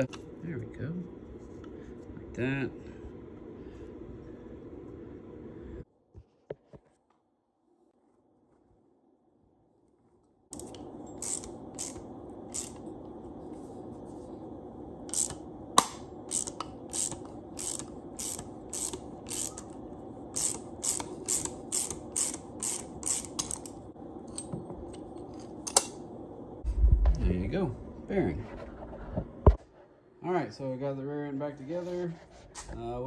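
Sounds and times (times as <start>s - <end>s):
steady hum: 0.0s - 5.9s, 10.5s - 33.0s
sharp crack: 15.7s - 16.8s.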